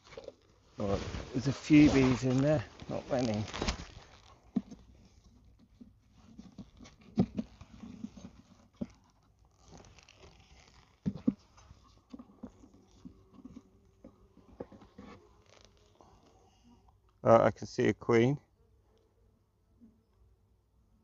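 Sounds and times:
wooden clicks and scrapes: 1.4s - 16.4s.

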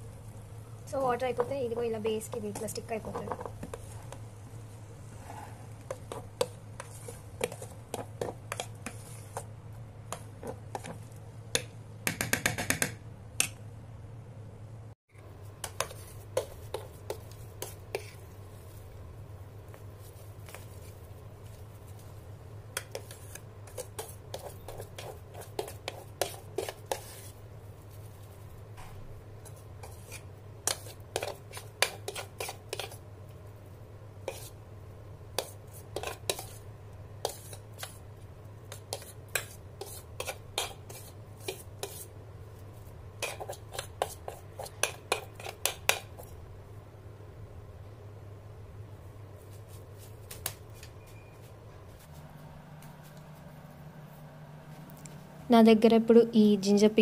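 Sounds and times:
steady low hum: 13.0s - 57.0s
metal spoon scraping a pot: 22.8s - 27.4s, 29.4s - 33.0s, 35.4s - 36.6s, 38.7s - 42.1s, 43.2s - 46.3s.

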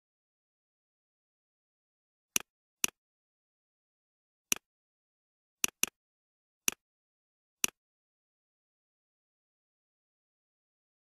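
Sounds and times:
computer mouse clicking: 2.4s - 3.0s, 5.6s - 6.0s.

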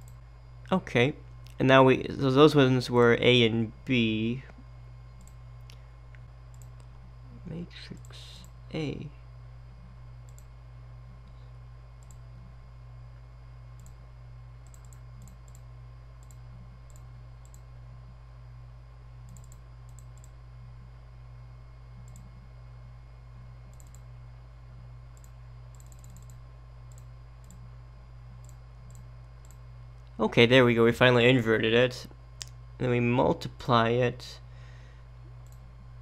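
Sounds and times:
low electrical hum: 0.0s - 36.0s
computer mouse clicking: 5.2s - 6.9s, 10.2s - 10.5s, 12.0s - 12.2s, 13.8s - 14.0s, 14.6s - 17.7s, 19.3s - 20.4s, 22.0s - 22.3s, 23.7s - 24.1s, 25.1s - 27.6s, 28.4s - 29.6s, 35.4s - 35.6s.

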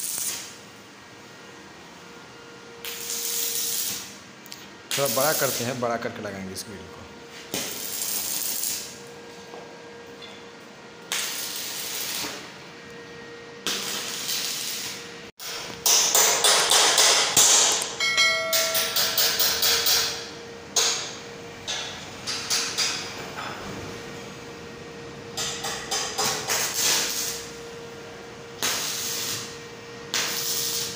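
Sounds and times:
arc welding crackle: 0.0s - 0.6s, 2.8s - 5.8s, 7.5s - 9.1s, 11.0s - 12.6s, 13.6s - 17.9s, 25.4s - 27.7s, 28.5s - 30.9s.

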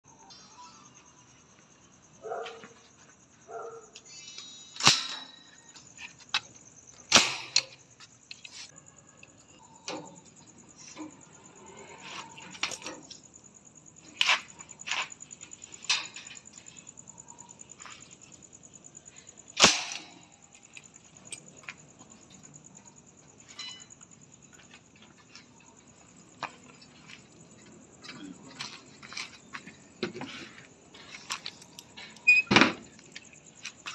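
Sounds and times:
nail gun shots: 4.8s - 5.3s, 7.1s - 7.7s, 19.6s - 20.2s.

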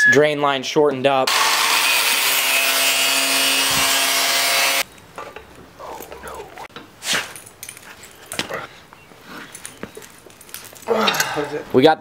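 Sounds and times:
power saw cutting hose: 1.3s - 4.8s
handling squeaks and clicks: 4.8s - 10.9s.

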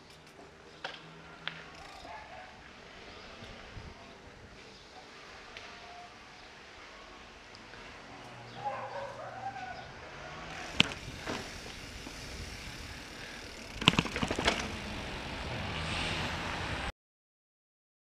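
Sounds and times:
bike rattles and knocks: 0.0s - 2.4s, 10.5s - 15.1s
bike rolling over pavement: 0.2s - 5.1s, 10.1s - 16.9s
wind noise on microphone: 3.3s - 4.6s.

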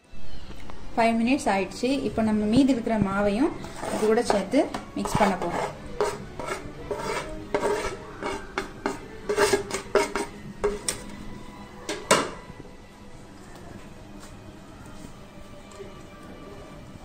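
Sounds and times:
spoon scraping and tapping metal: 3.6s - 11.0s.

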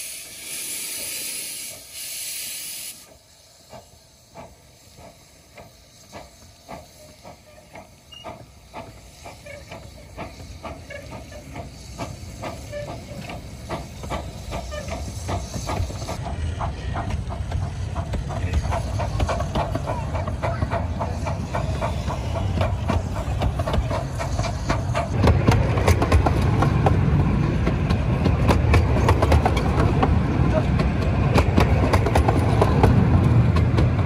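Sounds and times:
steam hissing from locomotive: 0.0s - 34.0s
train wheels clicking: 0.3s - 34.0s
low rumble of rolling coaches: 3.1s - 34.0s.

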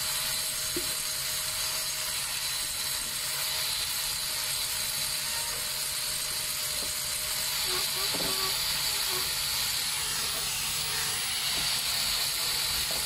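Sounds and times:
jackhammer chipping concrete: 0.0s - 13.0s.

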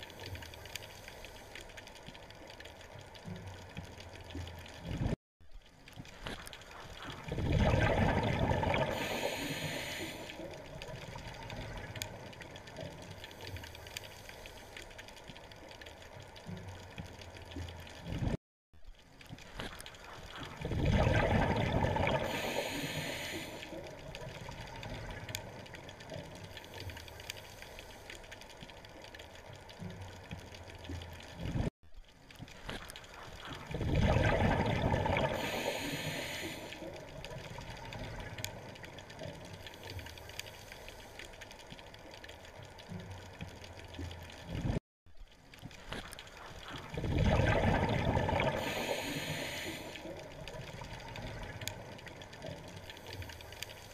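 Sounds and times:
exhaled bubbles gurgling underwater: 6.0s - 14.4s, 19.4s - 27.0s, 32.4s - 40.9s, 41.8s - 53.9s.

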